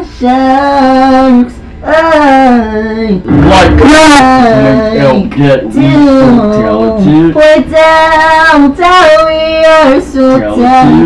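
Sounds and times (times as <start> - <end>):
man singing drawn-out notes: 3.1 - 7.9, 10.1 - 11.0.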